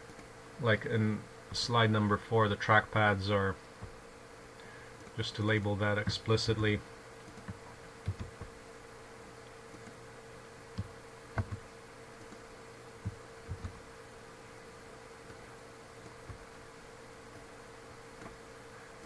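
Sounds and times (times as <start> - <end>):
low electrical hum: 0.0 - 19.0
computer mouse clicks: 7.2 - 8.5, 9.7 - 10.0, 10.7 - 11.6, 12.2 - 13.8.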